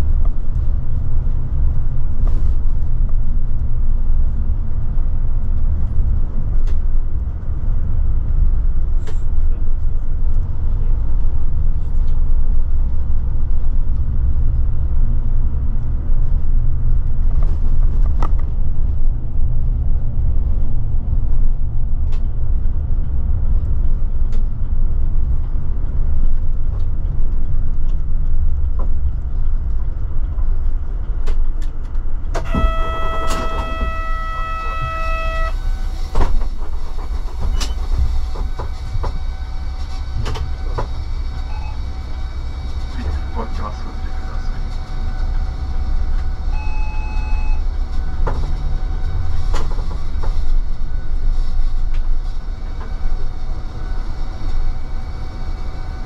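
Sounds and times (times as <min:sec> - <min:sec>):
bus engine and tyres rumbling: 0:00.0 - 0:56.0
steady pitched tone: 0:32.4 - 0:36.2.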